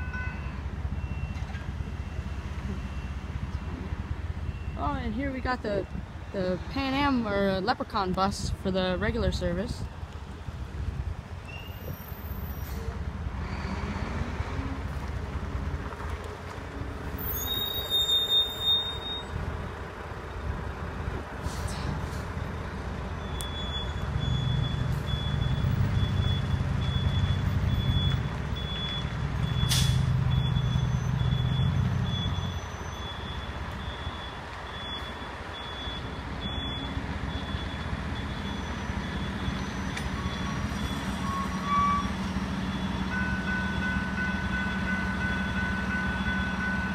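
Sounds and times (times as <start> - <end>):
high warning beeper: 17.3 - 19.4.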